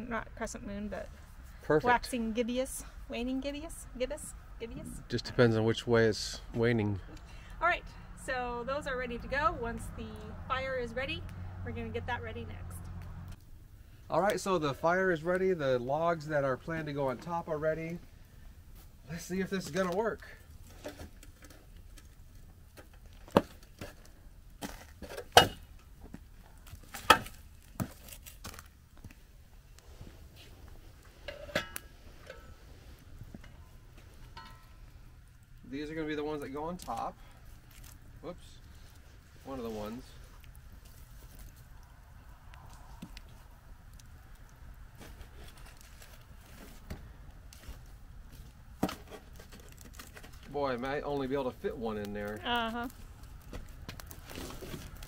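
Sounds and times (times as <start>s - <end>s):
wood fire crackling: 0.0s - 55.0s
metal fire tongs clanking: 22.8s - 26.0s, 31.2s - 32.6s, 33.2s - 37.9s.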